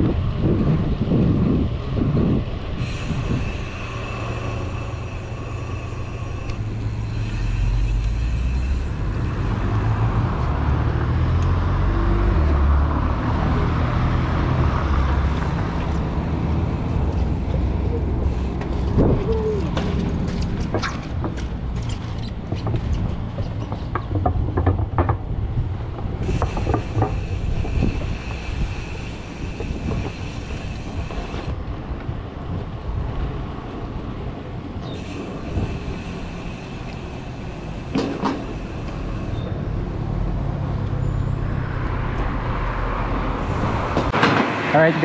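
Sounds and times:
wind and road noise: 0.0s - 45.0s
high steady buzz: 2.8s - 10.4s
bicycle clicks and knocks: 18.2s - 31.5s, 35.0s - 39.4s.

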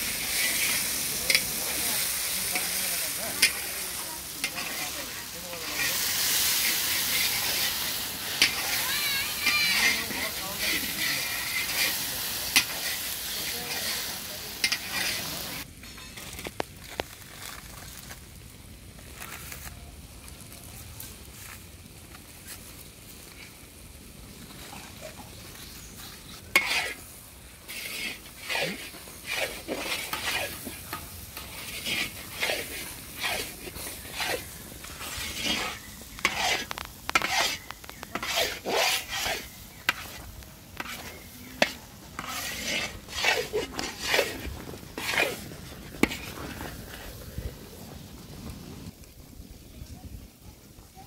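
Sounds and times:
paste sizzling: 0.0s - 15.7s, 24.2s - 47.2s
metal spatula scraping pan: 0.0s - 16.6s, 25.9s - 46.8s.

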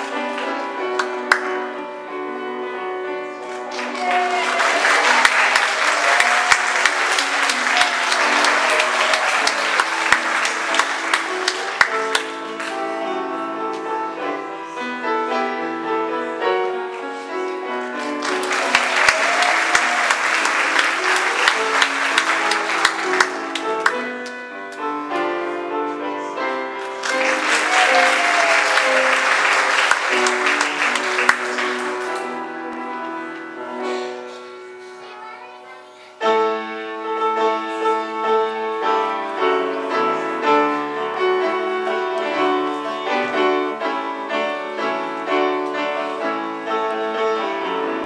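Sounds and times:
audience applauding: 0.0s - 1.5s, 3.4s - 13.1s, 18.0s - 24.4s, 26.8s - 32.6s
piano music: 0.0s - 48.0s.

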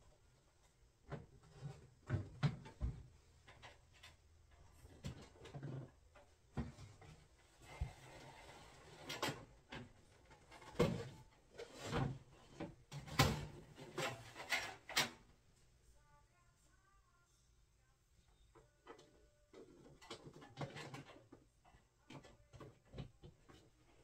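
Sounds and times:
rubbing and rustling: 0.5s - 16.0s
objects knocking and clunking: 0.6s - 15.4s, 18.5s - 24.0s.

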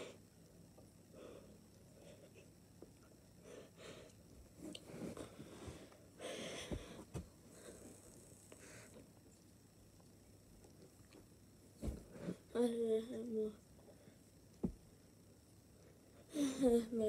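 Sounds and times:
boy puffing breaths: 4.9s - 7.8s
soft thumps: 14.6s - 14.9s.

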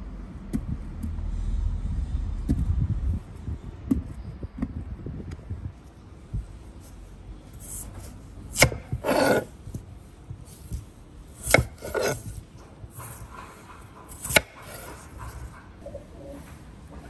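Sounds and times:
knife rasping through potato: 7.6s - 9.6s, 10.4s - 15.5s.

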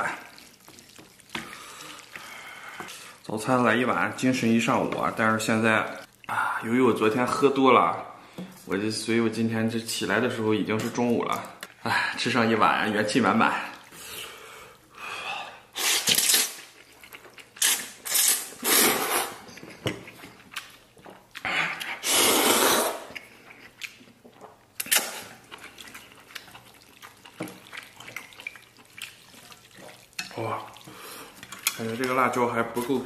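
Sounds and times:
chewing and mouth sounds: 0.1s - 2.3s, 15.9s - 18.6s, 19.4s - 33.0s
person slurping noodles: 15.8s - 16.6s, 17.6s - 19.4s, 21.4s - 23.2s.

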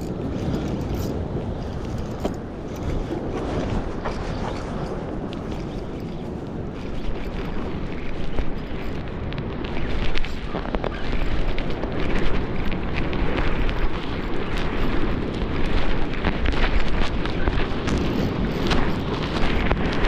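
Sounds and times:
fishing reel clicking: 0.0s - 3.0s
wind buffeting microphone: 0.0s - 20.0s.

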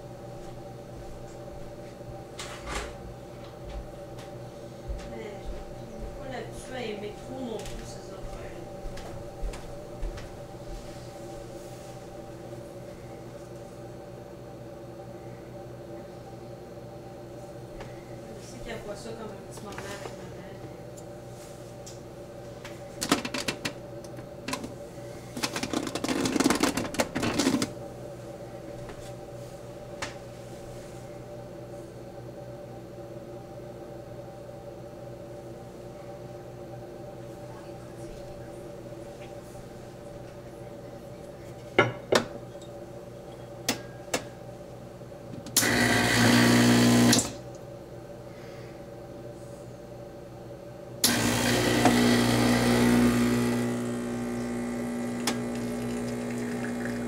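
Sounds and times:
low steady hum: 0.0s - 57.0s
espresso machine pump buzzing: 22.8s - 27.8s, 45.4s - 47.5s, 51.0s - 57.0s
portafilter clicking and scraping: 23.0s - 23.8s, 24.4s - 27.7s, 45.5s - 47.4s, 51.0s - 57.0s.

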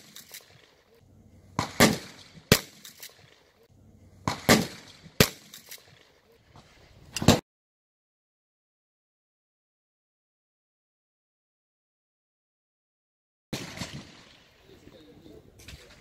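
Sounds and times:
shotgun shots: 0.0s - 0.7s, 1.5s - 3.4s, 4.2s - 6.0s, 13.5s - 14.5s.

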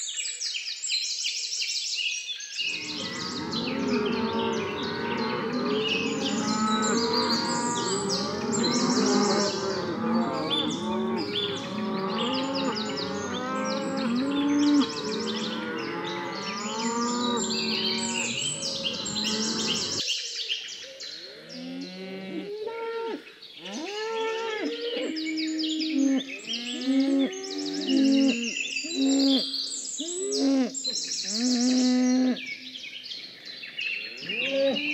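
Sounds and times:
birds chirping: 2.6s - 20.1s, 24.6s - 33.4s
cattle mooing: 2.7s - 20.0s.

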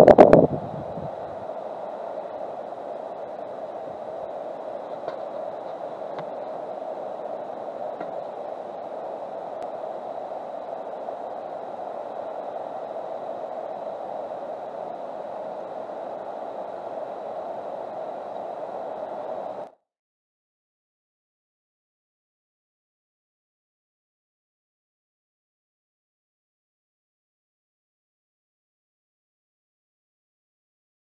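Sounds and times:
steady background noise: 0.0s - 19.7s
faint high whine: 0.0s - 19.9s.

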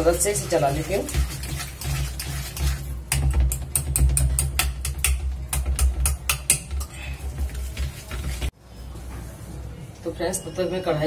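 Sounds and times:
whisk clinking in metal bowl: 0.0s - 5.0s.

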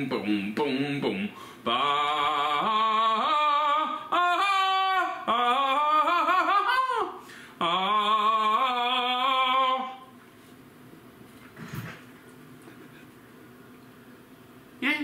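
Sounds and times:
man singing wordless tune: 0.0s - 10.1s.

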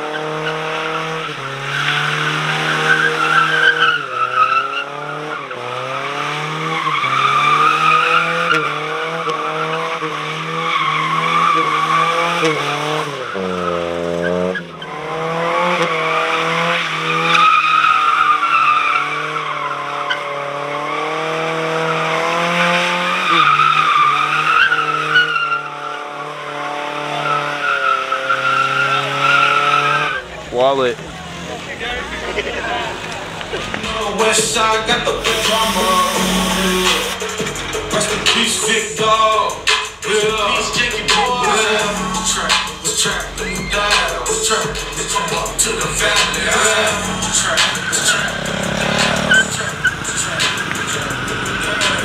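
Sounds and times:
engine revving high: 0.0s - 30.5s, 31.1s - 52.0s
tyres squealing: 0.1s - 15.2s, 27.3s - 30.4s, 31.0s - 52.0s.

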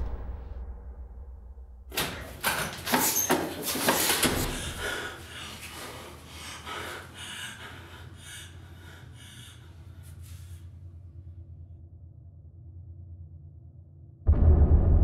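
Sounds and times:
woman panting and gasping: 3.6s - 10.4s.

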